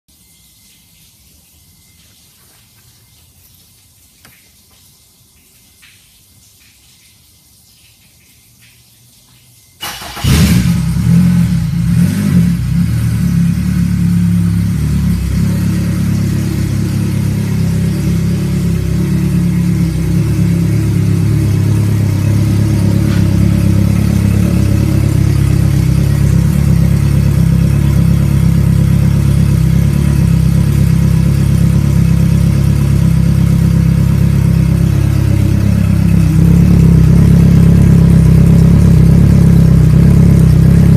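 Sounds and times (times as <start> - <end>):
outboard motor starting and idling: 9.8 - 40.9.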